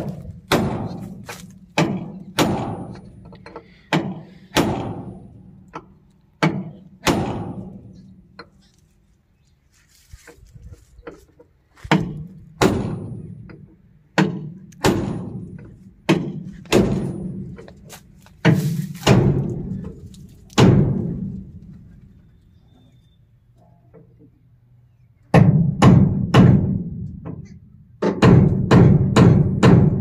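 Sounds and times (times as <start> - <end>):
heavy booming thuds: 0.0 - 5.6, 6.4 - 8.0, 11.8 - 17.8, 18.4 - 21.8, 25.4 - 27.3, 28.1 - 30.0.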